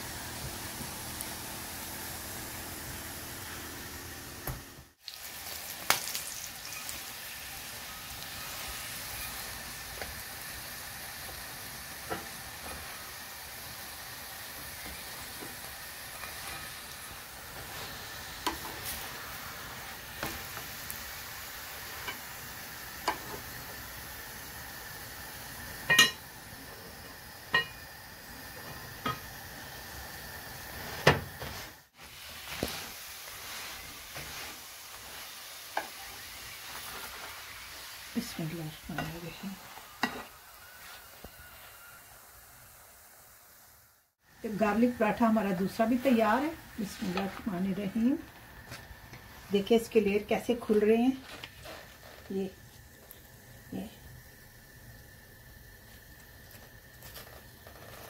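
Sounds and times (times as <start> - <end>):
flatbread sizzling in a pan: 0.0 - 58.0
spatula tapping and scraping pan: 40.0 - 40.3.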